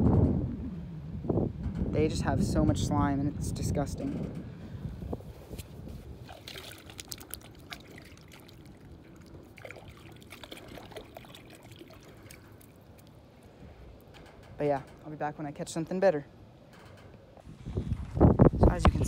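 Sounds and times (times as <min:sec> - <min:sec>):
water trickling and dripping: 0:06.3 - 0:13.5
small clicks and splashes: 0:06.3 - 0:14.3.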